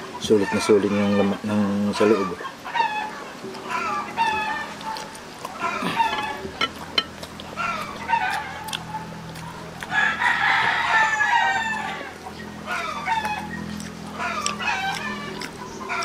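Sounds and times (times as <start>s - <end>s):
chickens clucking: 0.0s - 16.0s
rooster crowing: 2.0s - 4.8s, 5.6s - 6.5s, 7.6s - 9.0s, 9.8s - 16.0s.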